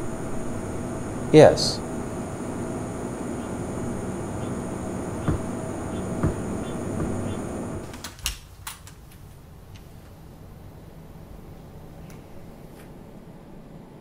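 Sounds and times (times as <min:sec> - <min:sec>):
room hum: 0:00.0 - 0:14.0
soft knocks: 0:05.2 - 0:07.8.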